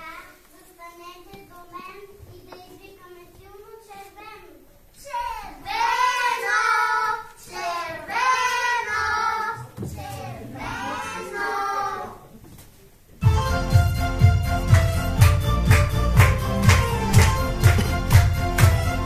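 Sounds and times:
children singing: 0:05.1 - 0:12.3.

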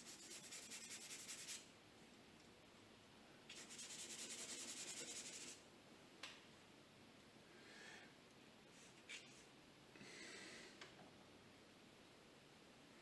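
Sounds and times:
paintbrush scrubbing on paper: 0:00.0 - 0:01.6, 0:03.5 - 0:05.6.

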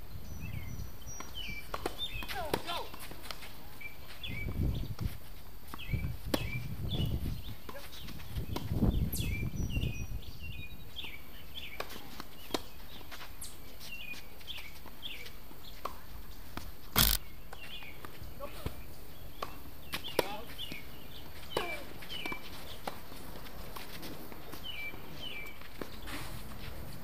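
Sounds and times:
tennis balls struck with rackets: 0:01.2 - 0:03.4, 0:16.6 - 0:17.2.

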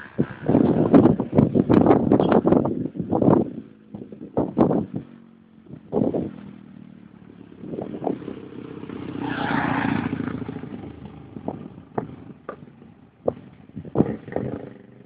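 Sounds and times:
vehicle passing by: 0:04.6 - 0:15.0.

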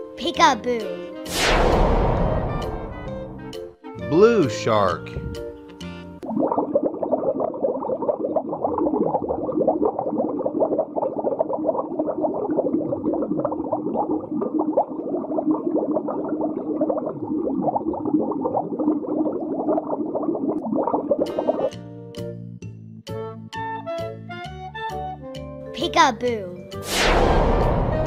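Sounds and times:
underwater bubbling and gurgling: 0:06.2 - 0:21.9.

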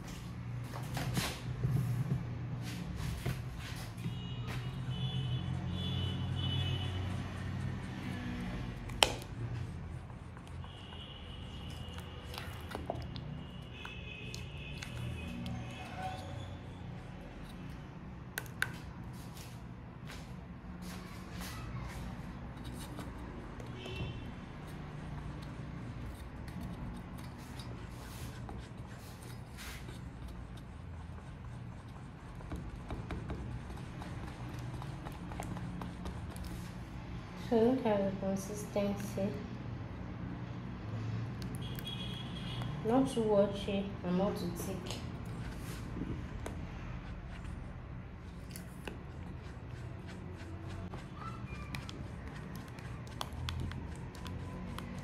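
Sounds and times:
spatula stirring batter in bowl: 0:03.2 - 0:19.5, 0:21.9 - 0:37.0, 0:44.4 - 0:55.0
spatula scraping bowl: 0:22.3 - 0:36.8.

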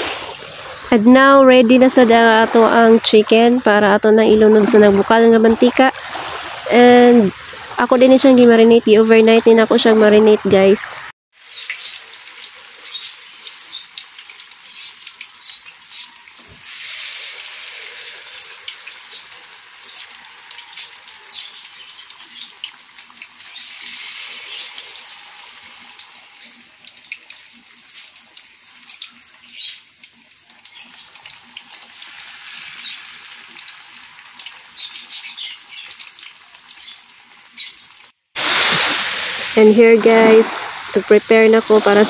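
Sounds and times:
chicken deep-frying in oil: 0:11.3 - 0:42.0.

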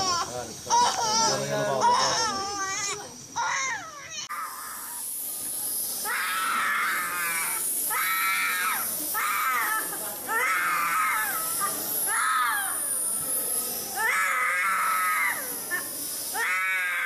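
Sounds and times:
toddler crying: 0:00.0 - 0:04.8.

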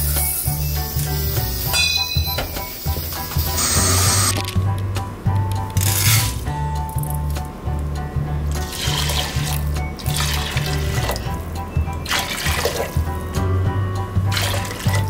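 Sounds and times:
broth pouring and splashing into pot: 0:08.6 - 0:11.4, 0:12.0 - 0:13.2, 0:14.3 - 0:15.0.

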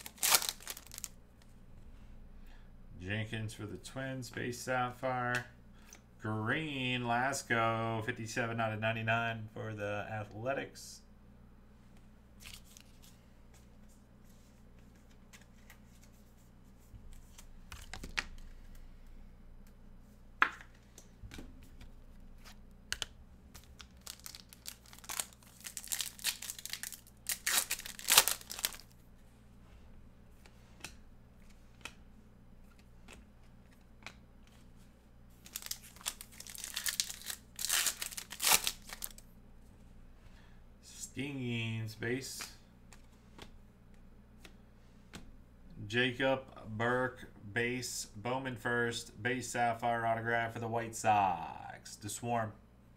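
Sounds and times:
foil wrapper tearing and crinkling: 0:00.0 - 0:01.1, 0:23.6 - 0:28.9, 0:35.4 - 0:39.2.

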